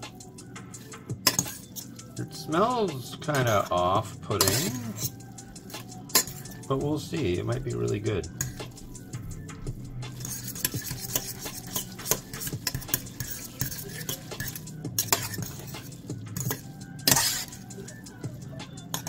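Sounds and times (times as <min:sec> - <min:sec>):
fork scraping steel saucepan: 0:00.8 - 0:02.6, 0:03.2 - 0:06.7, 0:07.4 - 0:19.0.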